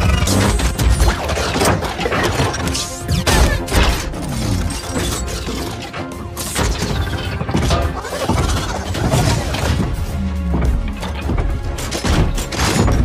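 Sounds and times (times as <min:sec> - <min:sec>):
film score music: 0:00.0 - 0:13.0
mechanical whirs: 0:00.0 - 0:13.0
metallic clanks and clatter: 0:10.8 - 0:13.0.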